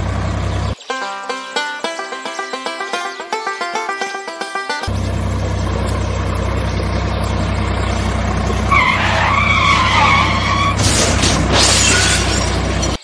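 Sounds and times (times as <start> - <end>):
tractor engine running: 0.0 - 13.0
wavering high squeal: 7.5 - 12.8.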